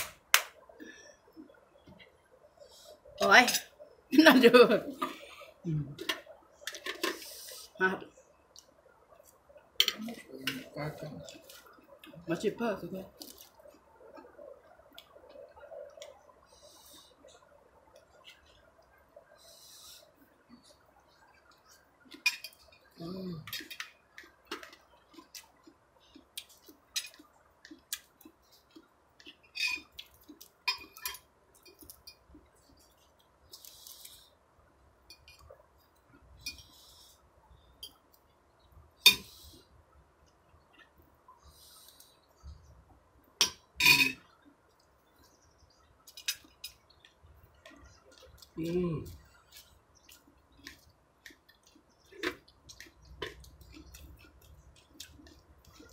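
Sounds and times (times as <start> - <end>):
spoons clinking on plates: 22.2 - 22.9, 29.4 - 30.0, 30.6 - 32.2, 35.1 - 35.5, 39.0 - 39.3, 43.4 - 44.3.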